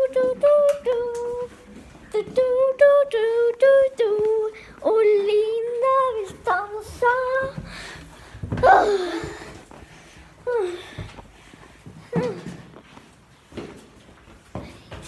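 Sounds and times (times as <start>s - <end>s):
high voice singing unaccompanied: 0.0s - 7.7s.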